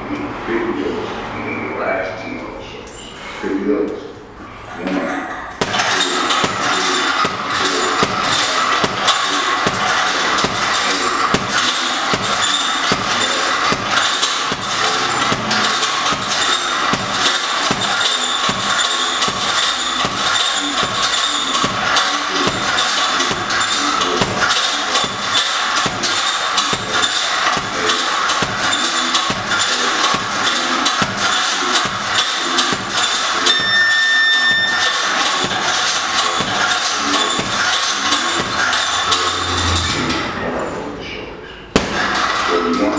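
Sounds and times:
noisy background: 0.0s - 42.9s
gloves thudding into punching bag: 5.6s - 23.6s, 24.2s - 27.8s, 28.4s - 33.8s, 41.8s - 42.3s
background music with steady beat: 5.6s - 40.4s, 41.7s - 42.9s
high steady tone: 33.5s - 34.8s.

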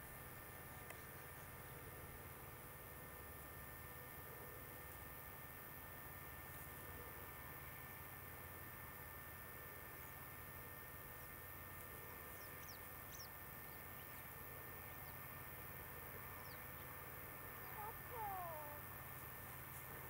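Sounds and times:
small birds chirping: 12.1s - 15.4s, 16.2s - 18.8s.

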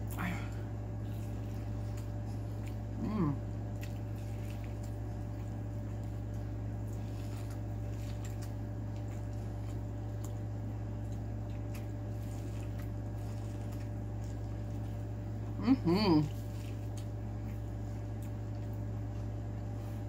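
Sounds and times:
person chewing corn: 0.0s - 20.0s
steady electrical hum: 0.0s - 20.0s.

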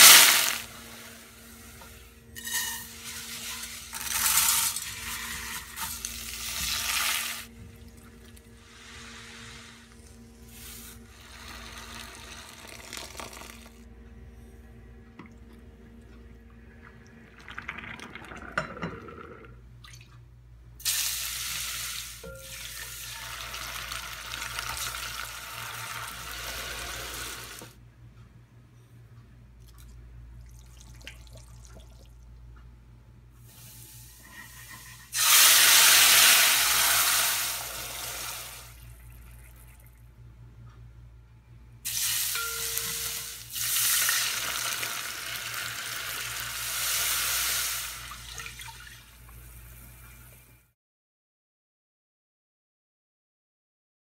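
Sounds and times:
loud hiss of sauce in hot pot: 0.0s - 1.2s, 26.2s - 27.6s, 33.5s - 38.7s, 41.9s - 48.1s
steady low hum: 0.6s - 20.8s, 27.7s - 35.1s, 37.8s - 43.6s
garlic sizzling in hot oil: 33.6s - 38.4s, 41.9s - 48.1s.

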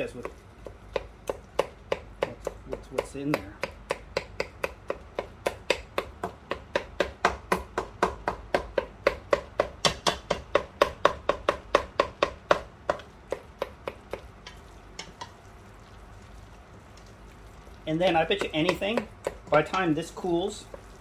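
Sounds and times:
wooden spatula knocking on pot: 0.1s - 15.4s, 18.0s - 20.0s.

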